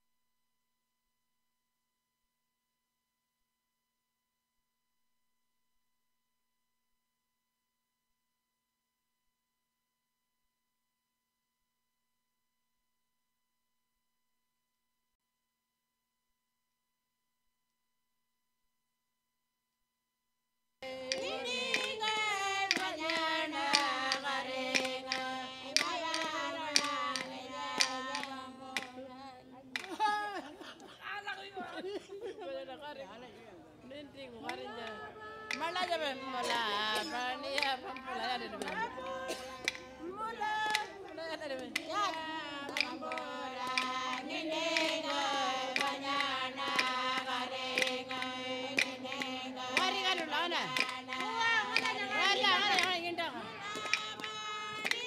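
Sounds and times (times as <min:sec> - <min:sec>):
voices chanting a melody: 0:20.8 - 0:29.9, 0:34.4 - 0:55.0.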